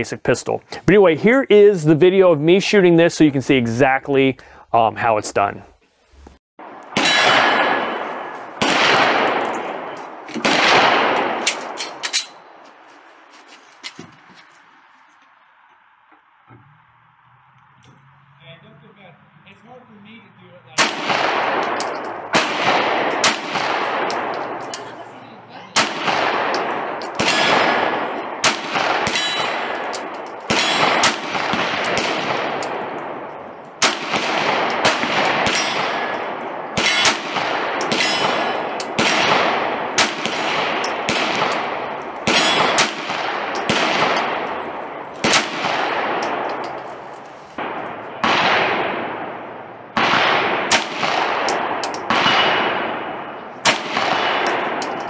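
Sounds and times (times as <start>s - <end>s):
pistol shots echoing: 6.6s - 12.5s, 20.8s - 25.0s, 25.7s - 55.0s.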